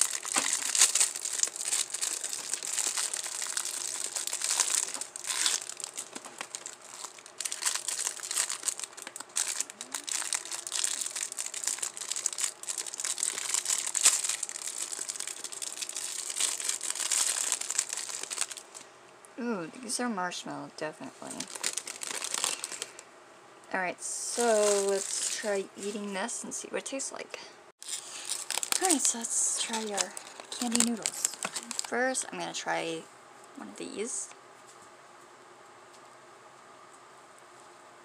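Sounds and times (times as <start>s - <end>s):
plastic candy wrappers crinkling: 0.0s - 18.8s, 21.2s - 23.0s, 24.4s - 25.9s, 27.8s - 32.1s.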